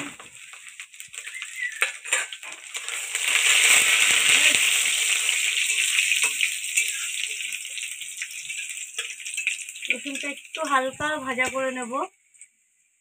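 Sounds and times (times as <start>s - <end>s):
garlic sizzling in hot oil: 0.0s - 13.0s
metal spatula scraping and tapping: 1.8s - 2.6s, 5.5s - 7.8s, 8.4s - 9.6s.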